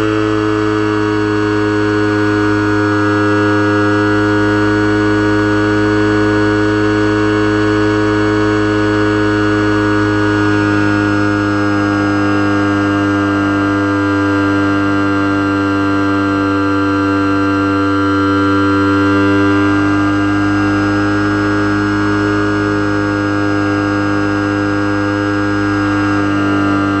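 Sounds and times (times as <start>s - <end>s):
model plane motor whine: 0.0s - 27.0s.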